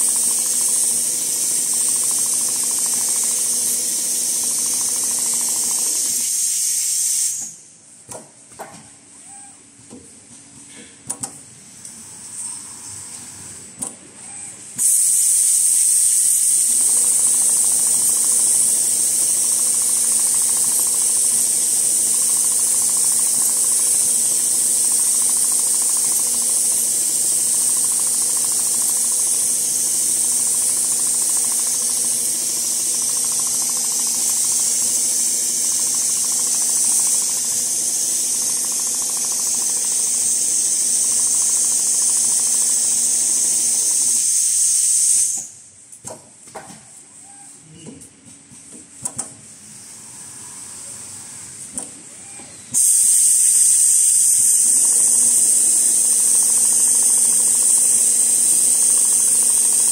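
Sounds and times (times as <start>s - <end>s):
machine humming: 0.0s - 6.4s, 16.2s - 43.2s
loud steady high hiss: 0.0s - 7.8s, 14.8s - 45.7s, 52.7s - 59.9s.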